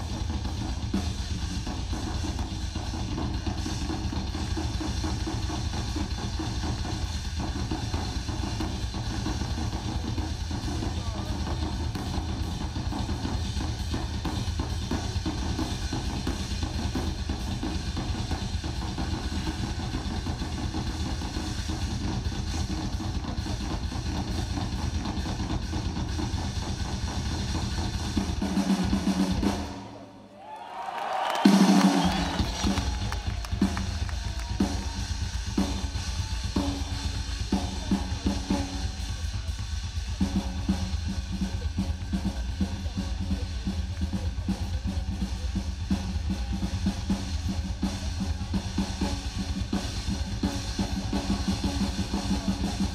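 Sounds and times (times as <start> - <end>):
drum kit solo: 0.0 - 30.0, 30.8 - 52.9.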